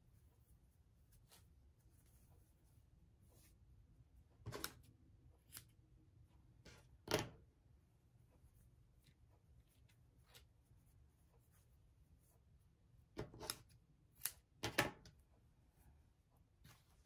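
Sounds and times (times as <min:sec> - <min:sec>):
fabric rubbing and rustling: 0:00.0 - 0:03.8.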